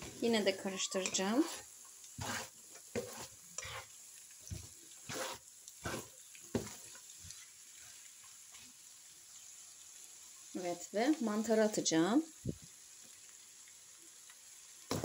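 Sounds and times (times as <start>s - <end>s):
food sizzling: 0.0s - 15.0s
spatula scraping frying pan: 0.6s - 8.6s.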